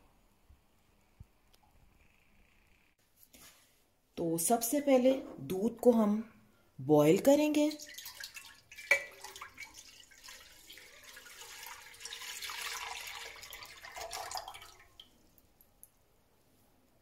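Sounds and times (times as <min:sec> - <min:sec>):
milk pouring into metal pot: 0:07.7 - 0:15.2.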